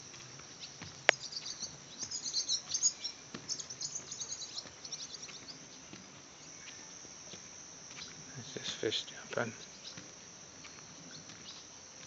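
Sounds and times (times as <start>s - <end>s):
insects droning: 0.0s - 12.0s
bird twittering: 0.5s - 11.8s.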